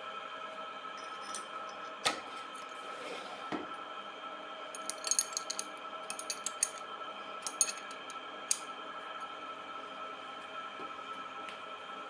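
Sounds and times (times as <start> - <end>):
light metallic clinks: 4.8 - 6.8.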